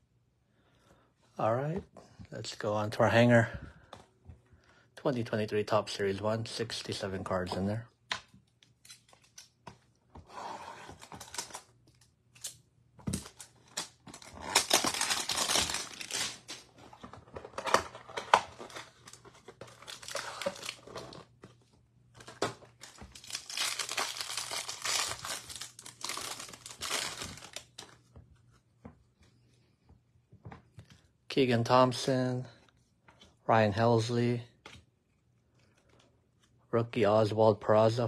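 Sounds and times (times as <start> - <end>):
wrapper tearing and crinkling: 13.2 - 16.7, 17.6 - 21.2, 22.2 - 27.9.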